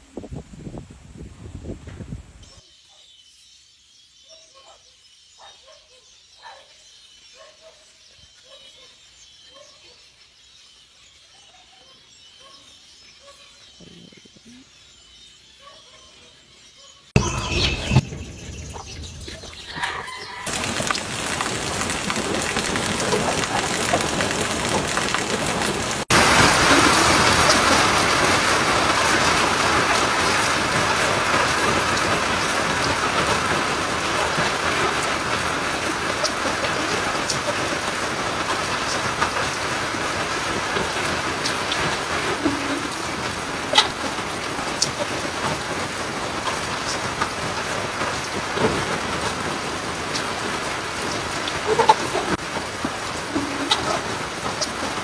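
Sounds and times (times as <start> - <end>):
oil popping and crackling: 20.3 - 55.0
chicken frying in hot oil: 20.4 - 55.0.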